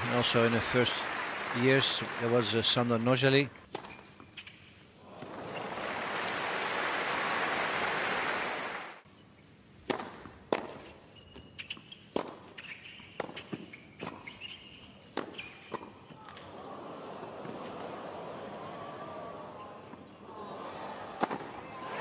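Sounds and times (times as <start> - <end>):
crowd applause: 0.0 - 3.1, 5.1 - 9.0
racket hitting tennis ball: 9.8 - 11.0, 11.6 - 14.4, 15.1 - 15.9
ball bouncing on hard court: 9.8 - 12.4.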